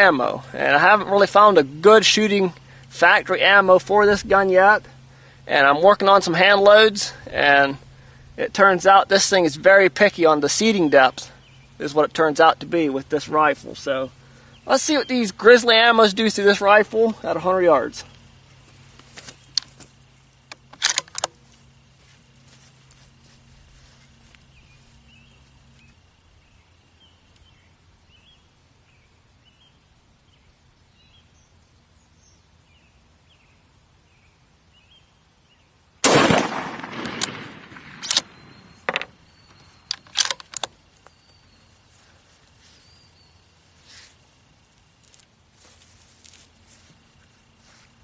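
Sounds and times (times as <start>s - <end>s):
rifle bolt metallic clicks: 20.5s - 21.4s, 36.1s - 39.1s, 39.8s - 40.8s
rifle handling clicks: 20.5s - 21.4s, 36.1s - 41.1s
rifle shot with echo: 36.0s - 38.9s
faint bird chirps: 38.2s - 40.1s.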